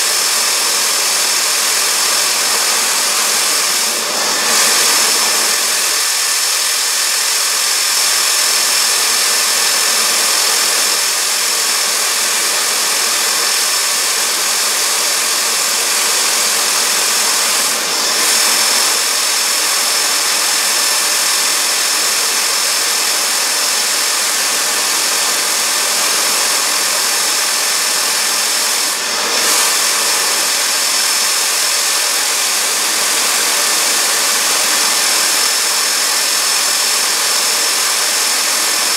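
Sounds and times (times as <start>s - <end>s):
high steady whine: 0.0s - 38.9s
jet engine roaring: 1.3s - 11.1s.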